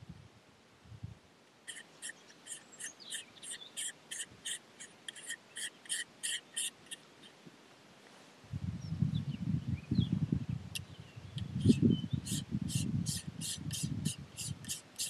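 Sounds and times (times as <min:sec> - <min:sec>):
squeaky rubbing strokes: 0:01.7 - 0:07.4, 0:11.4 - 0:15.0.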